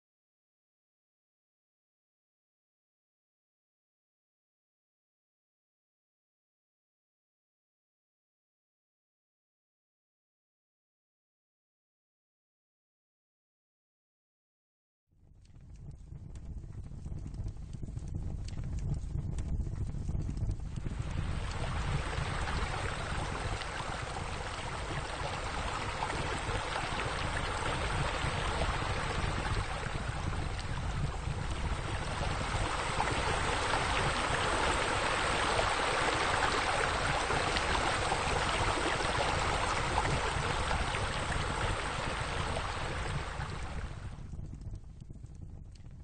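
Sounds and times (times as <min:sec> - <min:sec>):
water running and splashing: 0:20.8 - 0:44.0.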